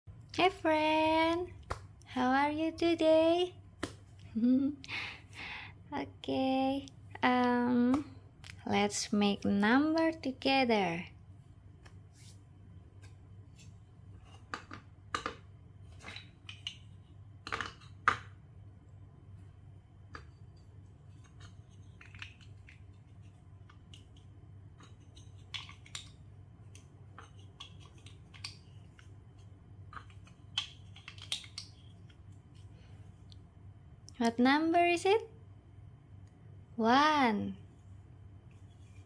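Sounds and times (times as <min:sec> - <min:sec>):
plastic bricks clicking together: 0:29.9 - 0:32.0.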